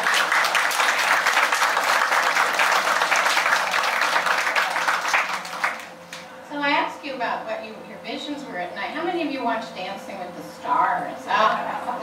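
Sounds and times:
small audience applauding: 0.0s - 6.1s.

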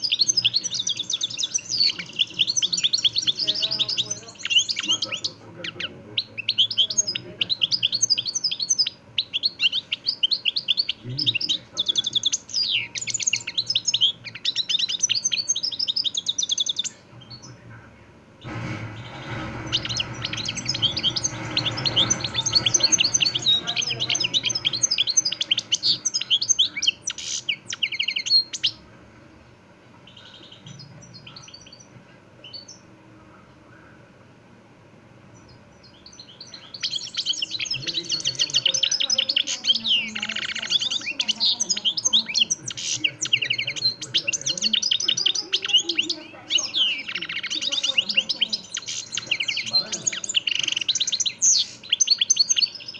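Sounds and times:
goldfinch twittering song: 0.0s - 17.6s, 18.4s - 28.8s, 35.4s - 52.9s
low steady noise: 0.0s - 52.9s.

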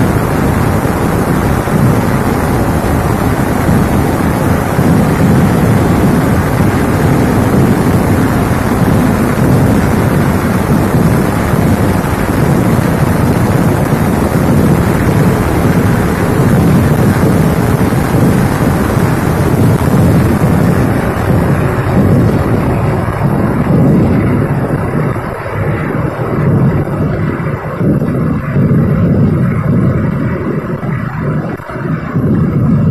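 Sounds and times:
firecrackers going off: 0.0s - 32.9s.

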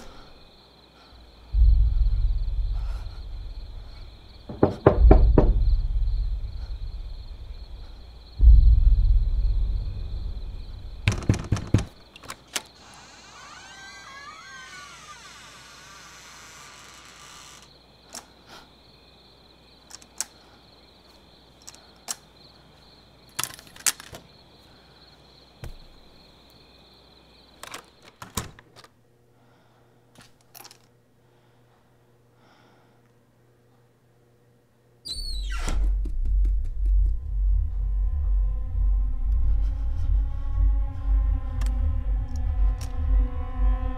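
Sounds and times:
dull thump: 1.6s - 6.3s
knocks on wooden door: 4.4s - 6.0s, 11.0s - 12.0s
crutches tapping and clunking: 11.0s - 12.7s
wavering creak: 11.1s - 18.3s, 38.1s - 43.9s.

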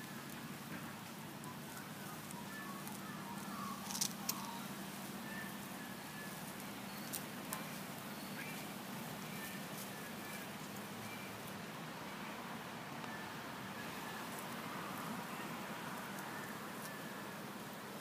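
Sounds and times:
faint bird chirps: 1.4s - 12.3s.

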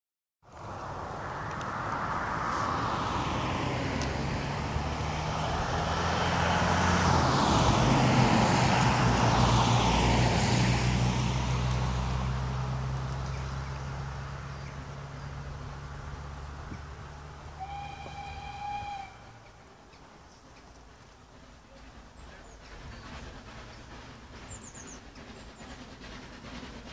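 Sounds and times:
engine drone passing by: 0.5s - 20.0s.

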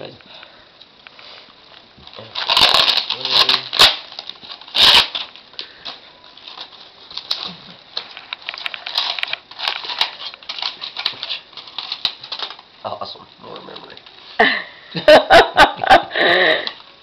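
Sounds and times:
aluminum foil crinkling: 1.6s - 14.4s
loud tearing rip: 2.2s - 5.4s, 6.5s - 7.8s, 8.5s - 12.6s.

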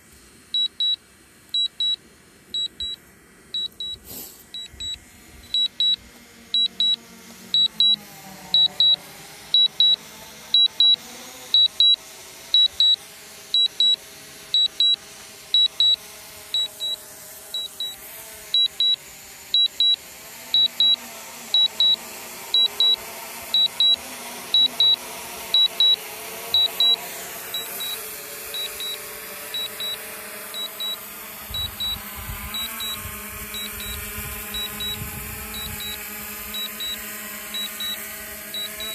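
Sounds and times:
drone motors humming: 1.6s - 38.9s
electronic double beeps: 3.6s - 4.0s, 27.6s - 28.0s, 30.6s - 31.0s, 31.6s - 32.0s, 33.6s - 36.0s, 36.6s - 37.0s, 37.6s - 38.0s.

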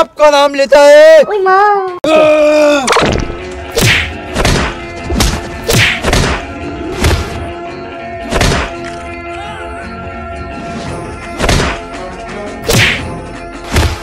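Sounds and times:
background music: 0.0s - 14.0s
punch hits with whooshes: 3.0s - 7.4s, 8.3s - 8.8s, 11.4s - 11.8s, 12.7s - 13.1s, 13.7s - 14.0s.

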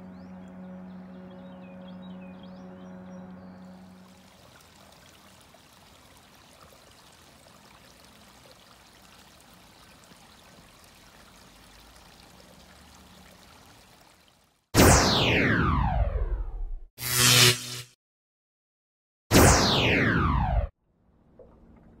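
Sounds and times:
faint running water: 3.5s - 14.7s.

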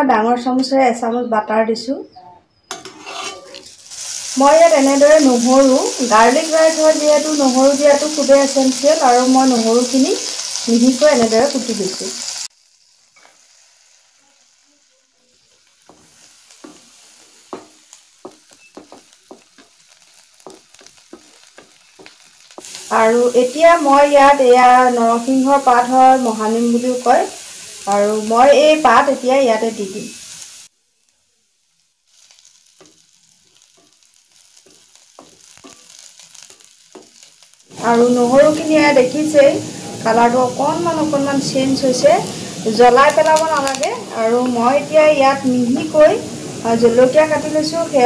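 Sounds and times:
wooden spatula scraping pan: 2.7s - 3.7s
garlic sizzling in butter: 2.7s - 48.0s.

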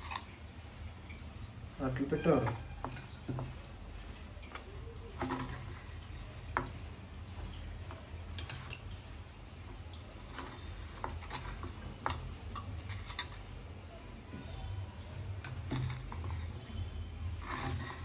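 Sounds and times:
spoon scraping metal plate: 0.0s - 0.3s, 1.9s - 3.6s, 5.0s - 6.6s, 8.2s - 8.9s, 10.2s - 13.6s, 15.4s - 18.0s.

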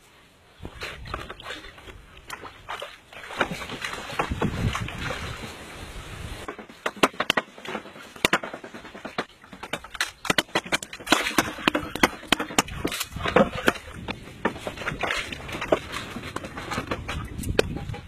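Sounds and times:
wood knocking on bamboo poles: 6.4s - 18.0s.

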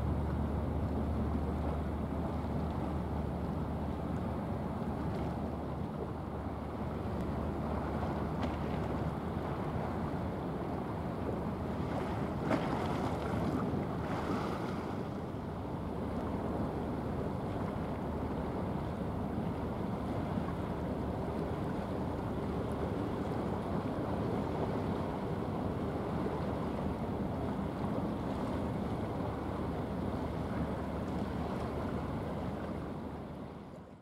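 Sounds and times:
wind over sea: 0.0s - 34.0s
waves washing: 9.0s - 18.7s.

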